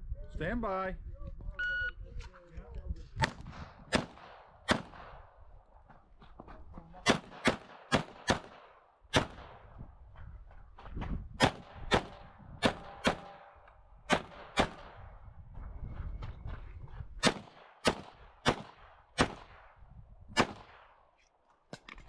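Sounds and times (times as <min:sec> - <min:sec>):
pistol shots: 0:03.2 - 0:05.2, 0:07.0 - 0:09.6, 0:11.4 - 0:15.0, 0:17.2 - 0:19.7, 0:20.4 - 0:21.0.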